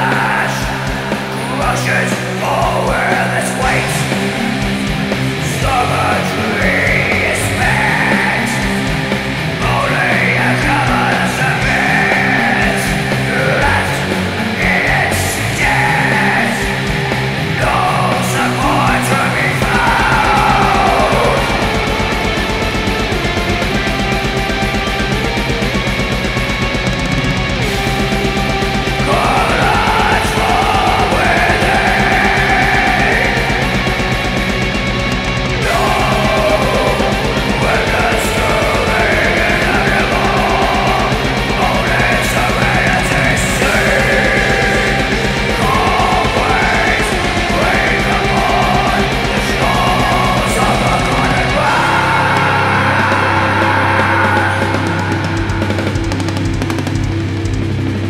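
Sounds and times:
distorted guitars: 0.0 - 58.0
fast metal drumming: 0.0 - 58.0
metal vocals: 0.0 - 58.0
sustained low note: 15.9 - 58.0.

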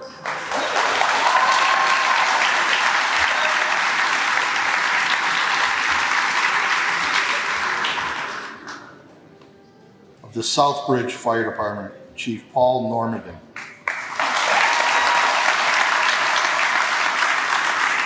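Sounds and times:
audience applauding: 0.0 - 9.0, 13.6 - 18.0.

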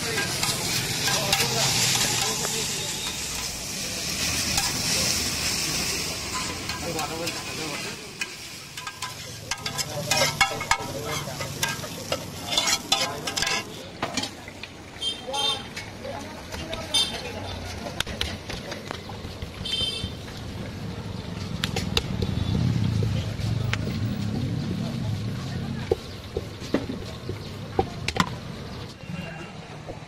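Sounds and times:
metal spatulas clacking and scraping: 0.0 - 3.6, 4.5 - 5.0, 5.8 - 14.4
noodles sizzling on a griddle: 0.0 - 13.8.

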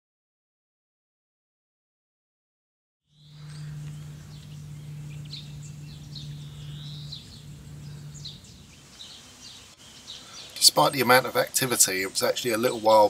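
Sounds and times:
steady low hum: 3.1 - 12.9
small birds chirping: 3.1 - 13.0.

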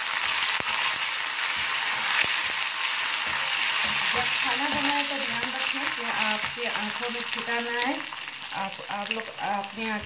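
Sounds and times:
food sizzling in hot oil: 0.0 - 10.0.

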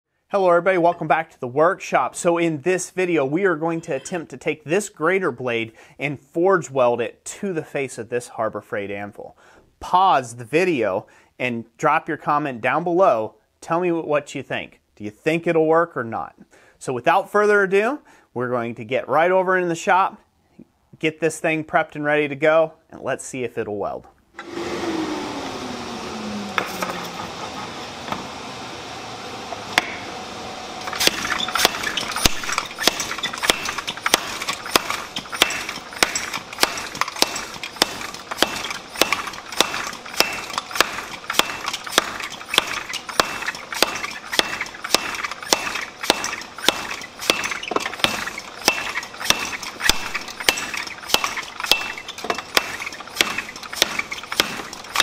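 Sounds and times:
mechanical sound with falling tone: 24.4 - 55.0
hammer striking steel on anvil: 29.8 - 30.1, 30.8 - 55.0.

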